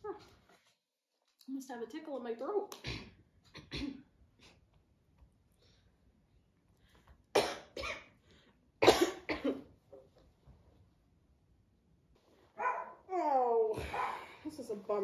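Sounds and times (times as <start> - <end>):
women coughing: 2.8 - 4.1, 7.4 - 8.2, 8.8 - 9.7.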